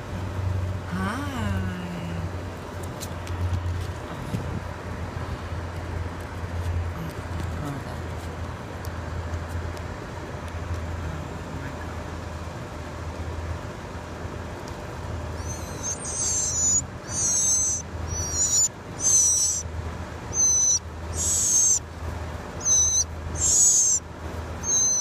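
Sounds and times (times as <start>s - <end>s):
low steady hum: 0.0s - 25.0s
nestling birds begging calls: 15.2s - 25.0s.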